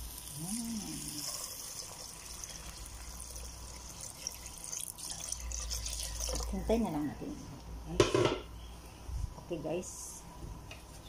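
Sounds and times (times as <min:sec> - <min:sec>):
water pouring into pot: 0:00.0 - 0:06.8.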